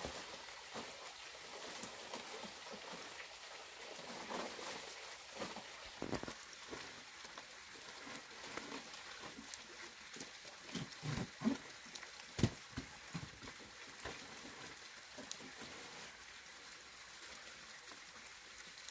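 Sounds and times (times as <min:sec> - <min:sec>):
leaves rustling: 0:00.0 - 0:18.9
knocks and thuds: 0:12.4 - 0:13.4.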